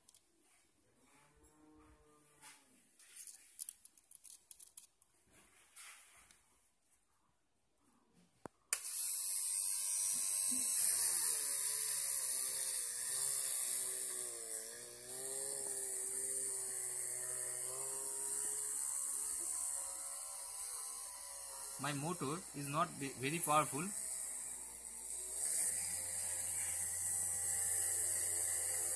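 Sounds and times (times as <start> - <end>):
small motor drill whining: 8.7 - 28.9.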